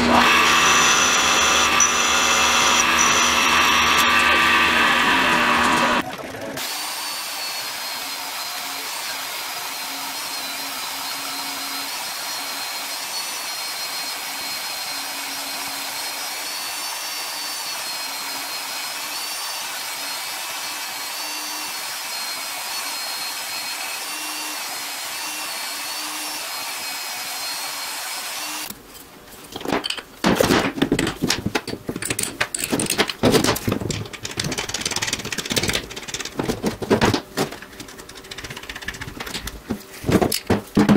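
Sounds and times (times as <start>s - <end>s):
bandsaw cutting metal: 0.0s - 28.8s
small metal parts clicking: 32.0s - 33.2s.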